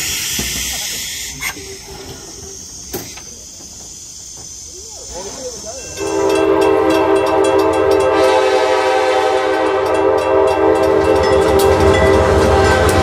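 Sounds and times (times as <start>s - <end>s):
train rumble and rattling: 0.0s - 13.0s
train whistle blast: 5.9s - 13.0s.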